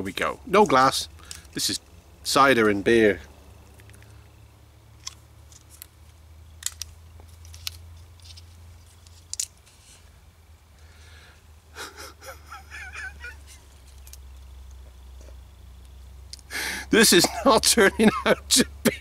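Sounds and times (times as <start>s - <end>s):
man's exasperated breathy groan: 16.5s - 16.9s.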